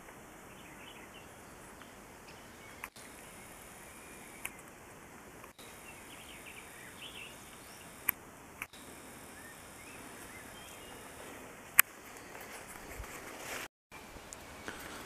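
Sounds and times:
distant bird chirps: 0.0s - 13.0s
sharp click: 4.4s - 4.7s.

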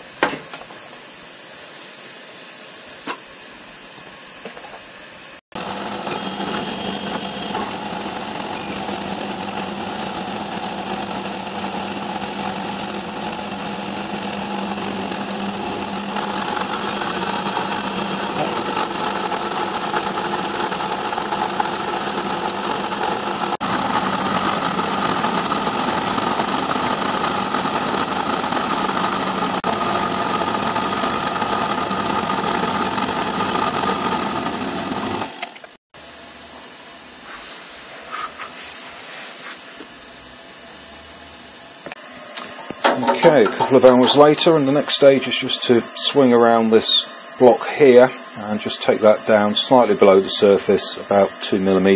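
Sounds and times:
milling machine cutting metal: 5.6s - 35.8s, 41.8s - 51.9s.

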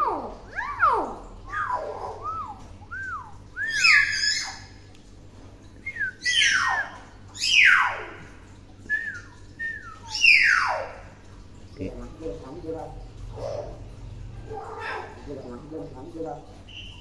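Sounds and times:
myna bird whistling: 1.5s - 4.6s, 5.8s - 7.9s, 8.9s - 10.7s, 16.7s - 17.0s.

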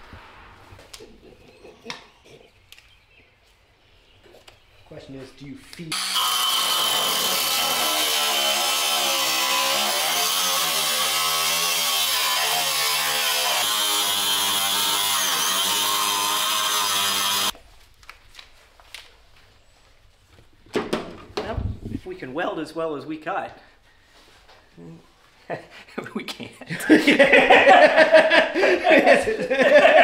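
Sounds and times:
angle grinder cutting steel: 5.9s - 17.6s.

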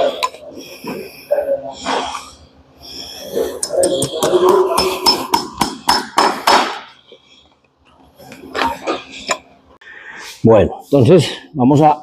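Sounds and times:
hammer striking horseshoe nails: 3.9s - 6.8s.

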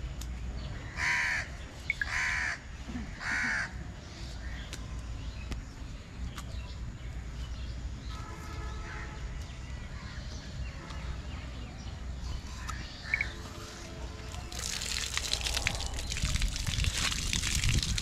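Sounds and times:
steady low rumble: 12.0s - 18.0s.

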